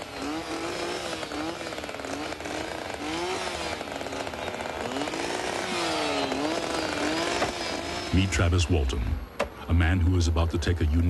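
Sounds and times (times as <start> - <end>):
chainsaws cutting timber: 0.0 - 8.6.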